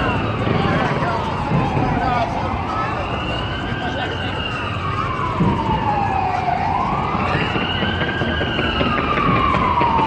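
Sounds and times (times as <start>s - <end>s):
emergency siren wailing: 0.0s - 10.0s.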